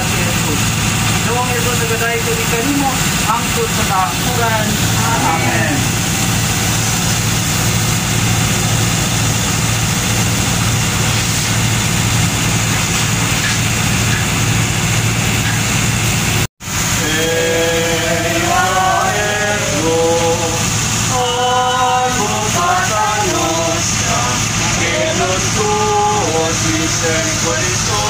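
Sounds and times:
ship machinery hum and hiss: 0:00.0 - 0:28.0
voices singing: 0:04.3 - 0:06.1, 0:17.0 - 0:28.0.

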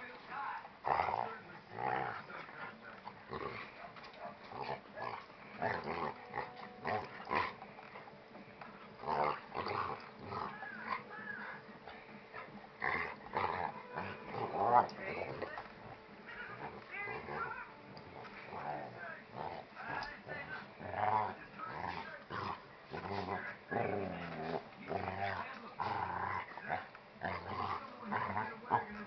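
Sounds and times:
dogs growling while play-fighting: 0:00.0 - 0:29.0.

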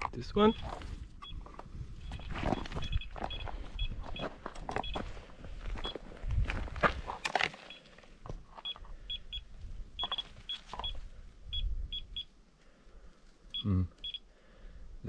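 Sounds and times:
geiger counter beeps: 0:00.4 - 0:05.1, 0:08.6 - 0:12.3, 0:13.5 - 0:14.3.

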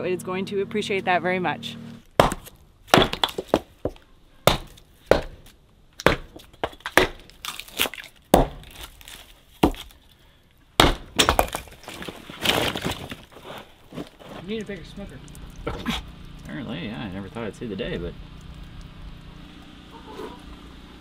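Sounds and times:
hatchet chopping wood: 0:02.1 - 0:10.0, 0:10.8 - 0:12.0.

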